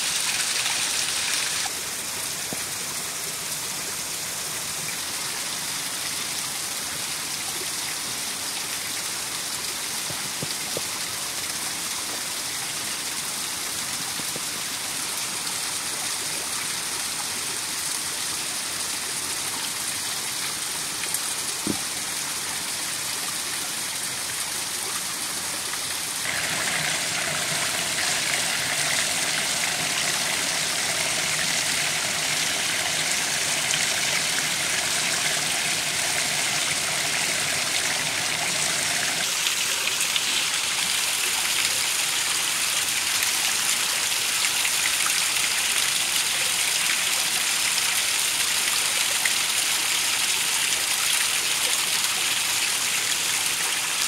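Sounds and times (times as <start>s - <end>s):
waterfall splashing into stream: 0.0s - 1.8s, 26.1s - 41.6s.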